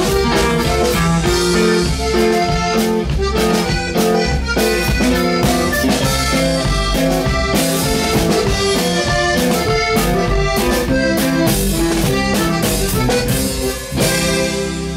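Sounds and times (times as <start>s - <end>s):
drum kit beating steady rhythm: 0.0s - 14.9s
live band music: 0.0s - 14.9s.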